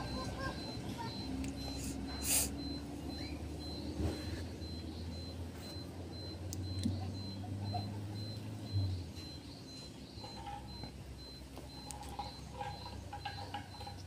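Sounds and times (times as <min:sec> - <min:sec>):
engine hum: 0:00.0 - 0:14.0
faint high-pitched beeps: 0:00.0 - 0:14.0.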